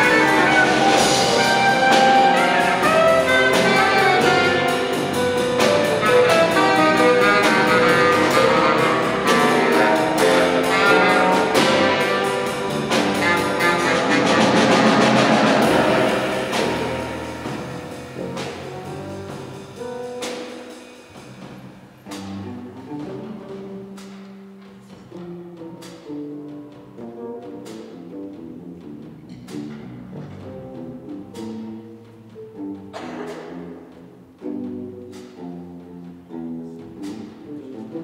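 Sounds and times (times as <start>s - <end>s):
drum and cymbal hits: 0.0s - 26.2s
jazz quartet playing: 0.0s - 38.0s.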